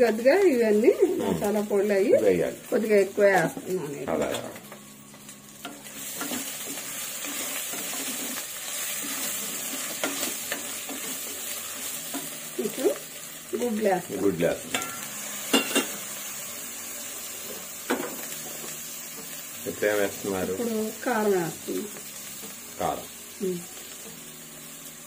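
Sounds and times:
spices sizzling in a pot: 0:00.0 - 0:25.0
spatula stirring and scraping: 0:05.6 - 0:12.5.

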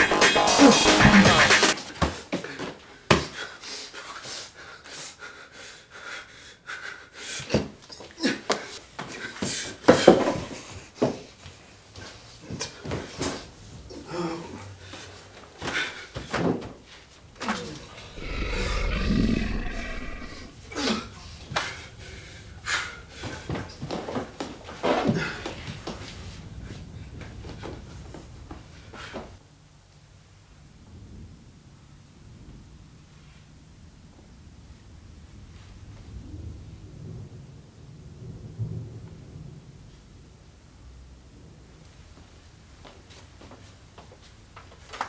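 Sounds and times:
man breathing heavily: 0:03.2 - 0:07.5, 0:18.0 - 0:20.5.

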